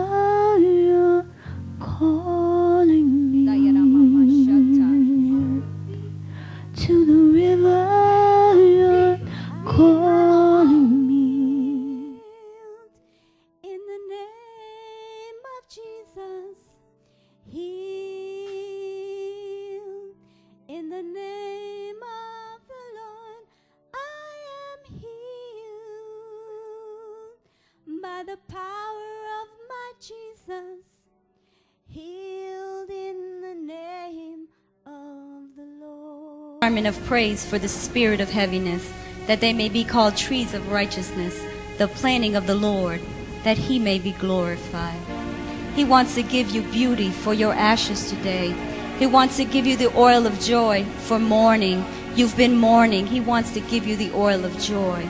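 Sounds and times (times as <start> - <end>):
woman singing with vibrato: 0.0 - 6.1, 6.7 - 12.9, 32.0 - 55.0
sustained instrumental accompaniment: 36.6 - 55.0.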